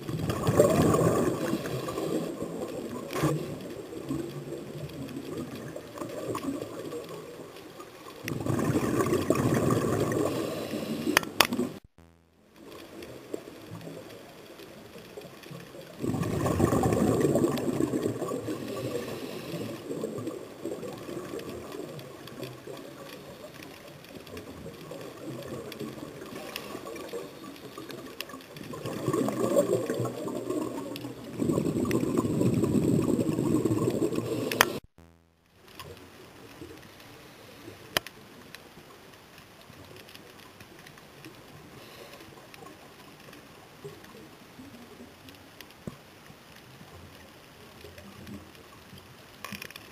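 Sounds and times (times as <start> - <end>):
underwater exhaust bubbles gushing: 0.0 - 7.5, 8.1 - 11.8, 15.8 - 23.6, 24.2 - 34.8
muffled underwater hiss: 0.0 - 11.8, 12.5 - 34.9, 35.6 - 49.9.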